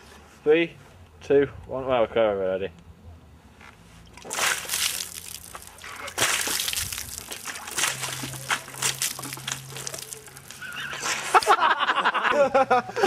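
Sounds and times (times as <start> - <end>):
water spraying and splashing: 4.1 - 11.5.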